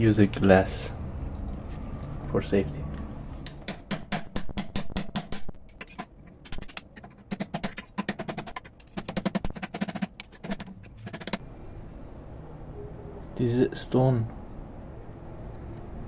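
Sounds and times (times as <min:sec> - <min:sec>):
chisel tapping and scraping: 0:03.4 - 0:11.4.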